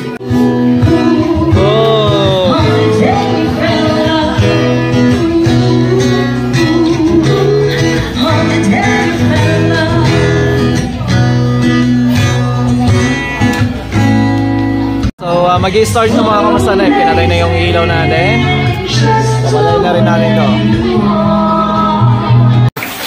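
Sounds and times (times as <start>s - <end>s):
woman singing into a microphone: 0.0s - 11.0s, 16.1s - 22.7s
strummed acoustic guitar: 0.0s - 22.7s.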